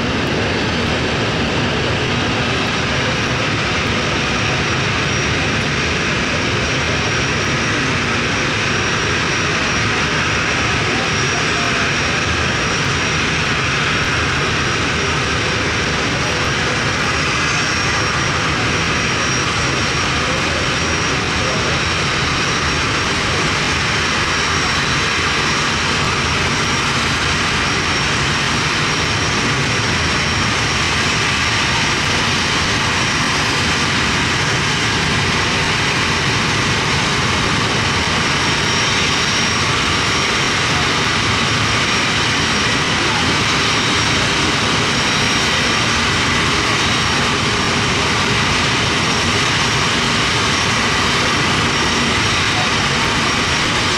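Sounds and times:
jet engine rumble and hiss: 0.0 - 53.9.

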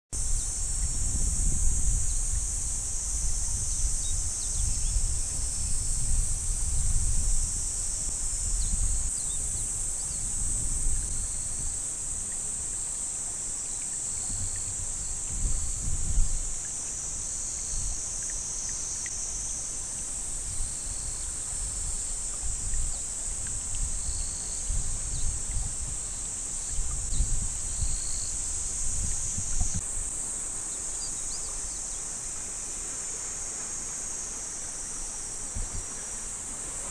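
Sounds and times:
wind buffeting microphone: 0.2 - 12.7, 14.1 - 18.2, 20.3 - 30.1, 35.5 - 36.0
insects chirping: 0.2 - 36.9.

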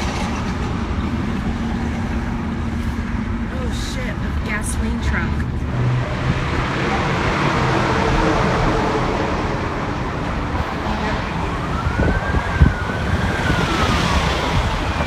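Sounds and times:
car road noise rumble: 0.0 - 15.0
siren wailing: 6.6 - 15.0.

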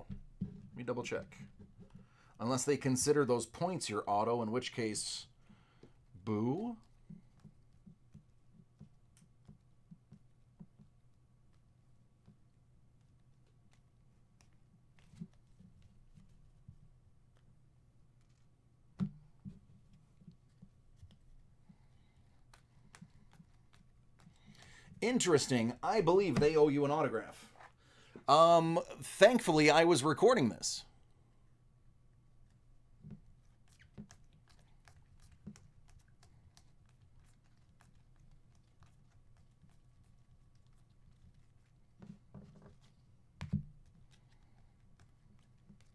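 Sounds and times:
cards being handled: 5.9 - 18.6, 19.2 - 28.3, 32.4 - 45.9.

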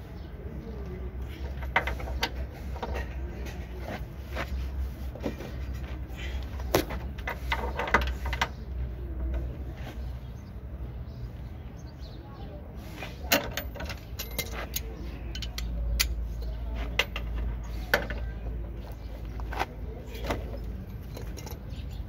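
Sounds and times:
hand tools clicking and knocking: 1.4 - 4.5, 6.6 - 8.7, 13.3 - 18.4, 19.5 - 21.8.

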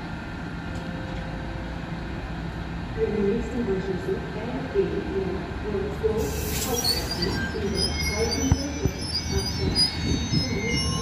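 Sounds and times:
high wheel squeals: 6.2 - 11.0.

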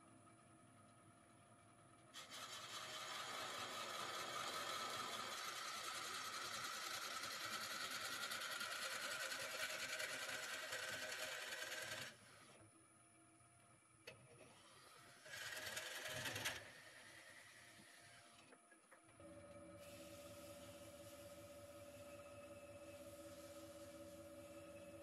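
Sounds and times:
drill bit boring into wood: 2.2 - 12.2
wood lathe humming: 2.2 - 12.2.

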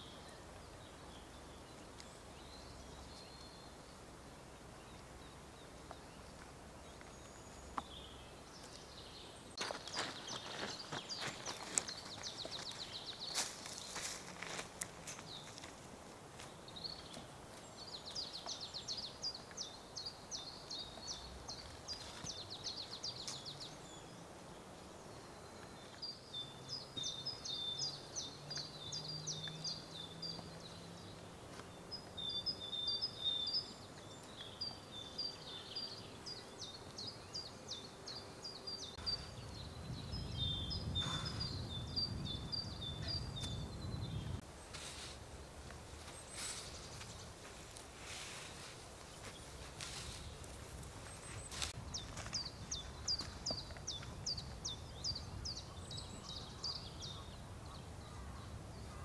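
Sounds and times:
songbird trilling: 38.1 - 44.4.

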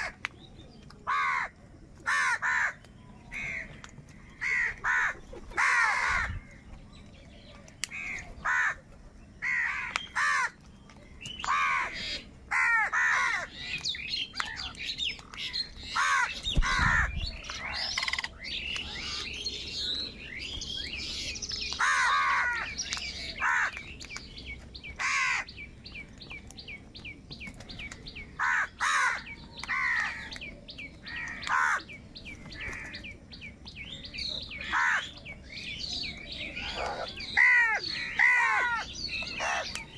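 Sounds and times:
crows cawing: 1.1 - 3.8, 4.4 - 6.5, 7.9 - 8.8, 9.4 - 10.6, 11.5 - 13.6, 15.9 - 18.3, 21.7 - 23.8, 25.0 - 25.5, 28.4 - 30.4, 31.0 - 31.9, 32.6 - 33.0, 34.6 - 35.2, 36.6 - 39.8.

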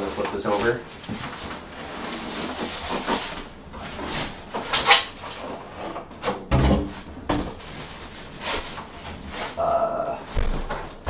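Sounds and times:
polystyrene foam scraping: 0.1 - 4.4, 7.6 - 9.8.

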